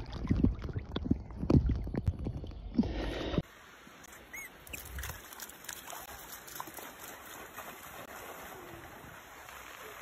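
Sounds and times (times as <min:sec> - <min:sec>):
sea water washing and splashing: 0:04.7 - 0:10.0.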